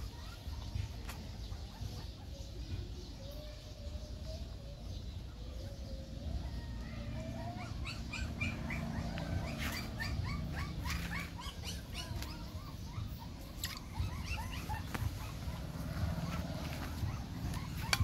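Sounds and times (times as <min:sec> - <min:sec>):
puppy whimpering: 0:06.4 - 0:18.0.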